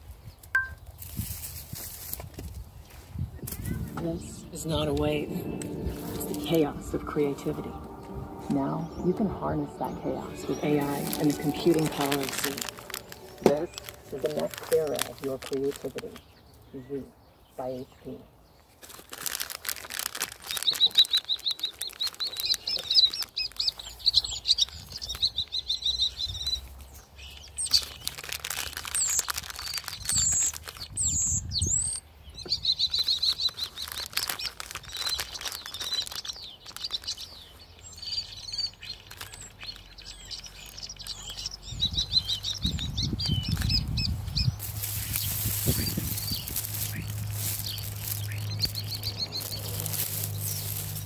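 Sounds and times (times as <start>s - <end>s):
birds chirping and trilling: 2.8s - 18.7s, 20.4s - 28.2s, 28.8s - 51.0s
low rumble: 3.5s - 15.2s, 43.5s - 51.0s.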